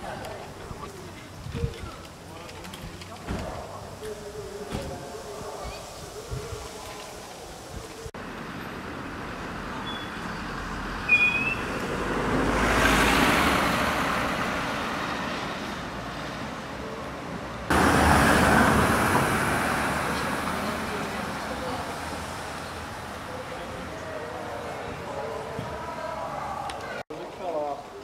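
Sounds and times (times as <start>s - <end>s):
traffic noise: 0.0s - 28.0s
vehicle passing: 8.2s - 27.0s.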